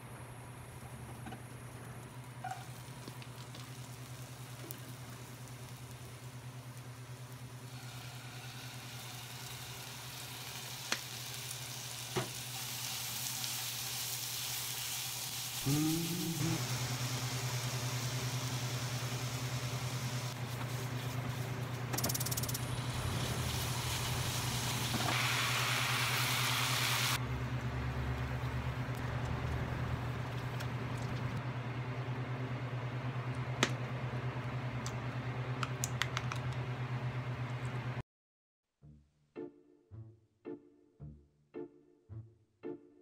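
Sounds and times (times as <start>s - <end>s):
food sizzling in a frying pan: 2.4s - 20.4s, 22.2s - 27.2s.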